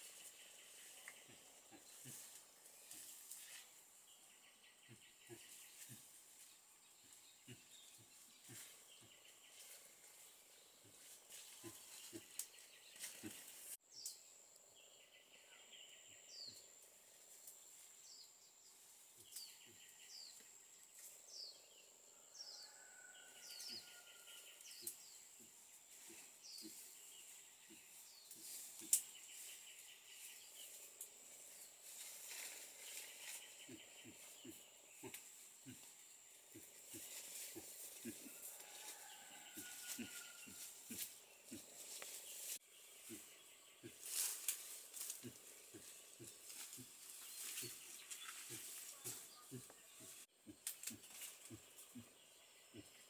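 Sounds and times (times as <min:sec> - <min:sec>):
rustles and snaps in undergrowth: 0:00.0 - 0:04.1, 0:05.3 - 0:14.2, 0:18.8 - 0:21.3, 0:23.4 - 0:52.0
birds calling: 0:10.9 - 0:13.8, 0:23.5 - 0:30.9, 0:31.6 - 0:53.0.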